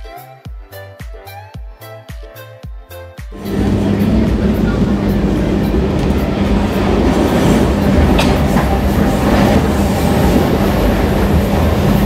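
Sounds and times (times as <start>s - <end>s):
train rumbling and rattling: 3.4s - 12.0s.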